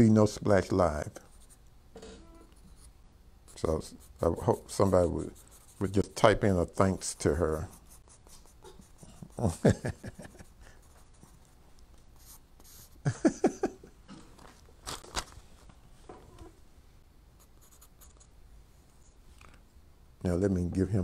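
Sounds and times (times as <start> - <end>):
pencil scratching on paper: 2.6 - 9.6, 12.2 - 13.0, 17.4 - 18.3.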